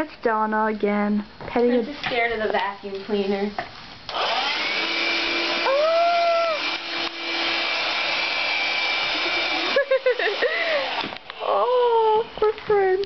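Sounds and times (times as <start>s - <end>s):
stick vacuum cleaner whining: 4.1s - 12.8s.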